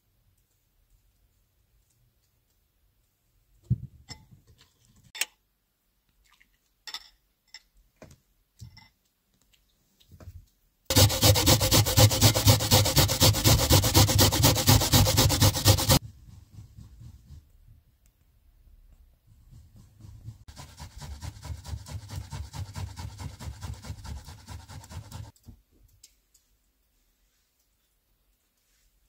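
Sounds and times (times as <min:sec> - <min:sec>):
onion grated on metal grater: 0:10.9 - 0:16.0, 0:20.5 - 0:25.3.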